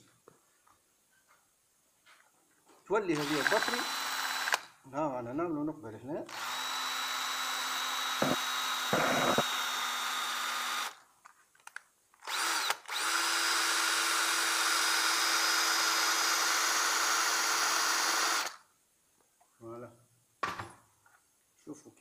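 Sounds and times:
power drill boring into metal: 0:03.1 - 0:04.7, 0:06.3 - 0:11.0, 0:12.2 - 0:18.6.

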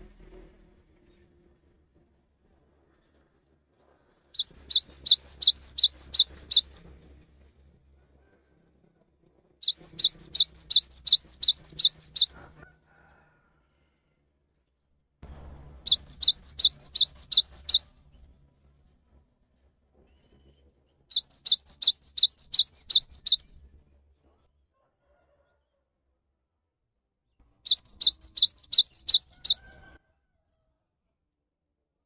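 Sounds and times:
bird singing whistled notes: 0:04.4 - 0:06.8, 0:09.6 - 0:12.4, 0:15.9 - 0:17.9, 0:21.1 - 0:23.5, 0:27.7 - 0:29.7.

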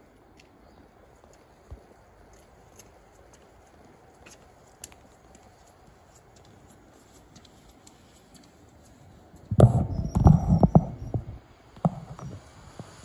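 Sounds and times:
phone handling rumbling and rubbing: 0:09.5 - 0:12.4.

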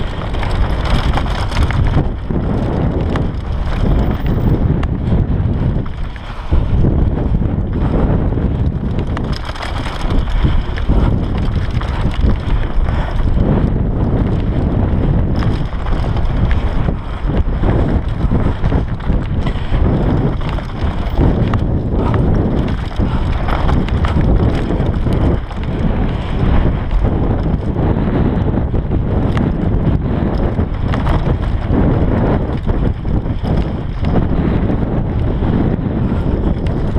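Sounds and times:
tyres crunching over gravel: 0:00.0 - 0:27.7
bike rattling over bumps: 0:00.0 - 0:36.9
wind buffeting microphone: 0:00.0 - 0:36.9.

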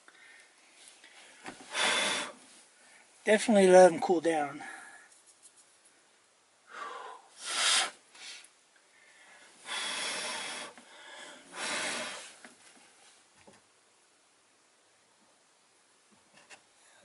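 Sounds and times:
person blowing puffs of air: 0:01.6 - 0:02.5, 0:06.7 - 0:08.5, 0:09.6 - 0:12.4.

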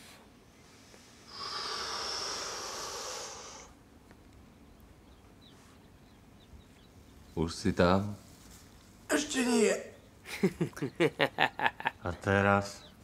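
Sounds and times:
long breathy hiss: 0:00.0 - 0:03.8.

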